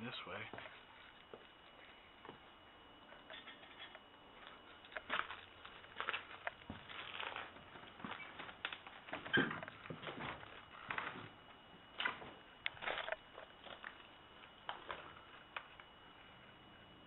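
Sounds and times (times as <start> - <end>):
footsteps crunching on debris: 4.3 - 15.8.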